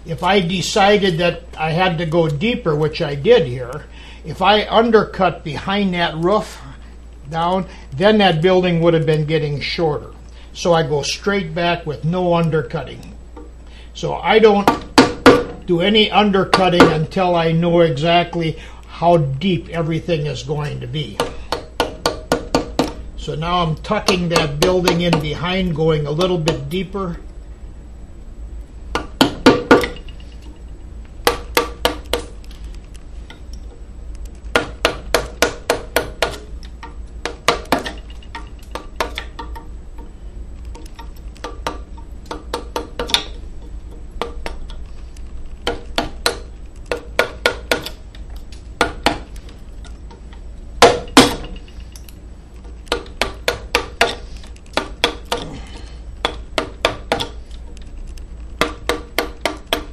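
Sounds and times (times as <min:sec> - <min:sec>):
mallet striking chisel into wood: 0:14.6 - 0:15.6, 0:16.5 - 0:17.0, 0:21.2 - 0:23.0, 0:24.0 - 0:25.4, 0:26.2 - 0:26.7, 0:28.9 - 0:30.0, 0:31.2 - 0:32.3, 0:34.5 - 0:40.1, 0:40.9 - 0:44.7, 0:45.6 - 0:48.0, 0:48.8 - 0:49.3, 0:50.8 - 0:51.6, 0:52.9 - 0:55.6, 0:56.2 - 0:57.4, 0:58.6 - 0:59.9.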